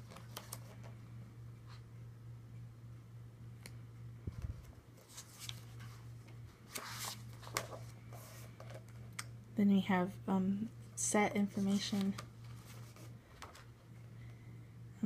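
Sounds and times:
paper pages rustling: 0.0 - 1.0, 4.4 - 9.0, 11.5 - 13.7
steady low hum: 0.0 - 15.0.

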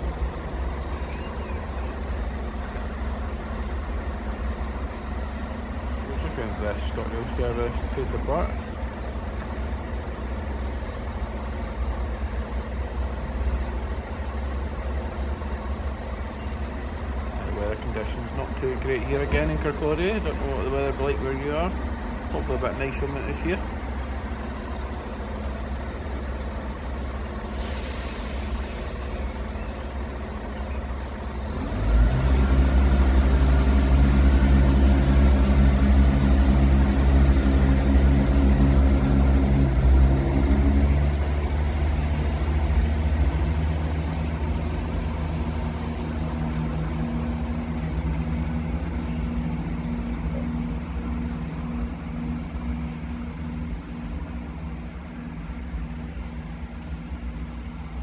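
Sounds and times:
diesel train engine: 0.0 - 58.0
air hiss: 27.4 - 29.4.

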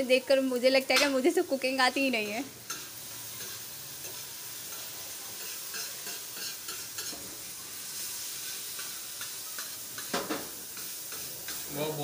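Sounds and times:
tomato masala sizzling on a griddle: 0.0 - 12.0
spatula scraping and tapping griddle: 2.1 - 7.6, 8.4 - 11.8.

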